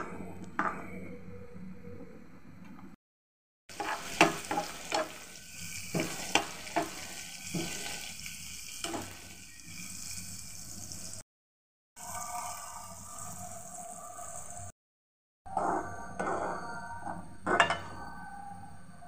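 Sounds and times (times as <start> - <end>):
spatula scraping pan: 3.7 - 10.2
onions sizzling in hot oil: 3.7 - 11.2, 12.0 - 14.7.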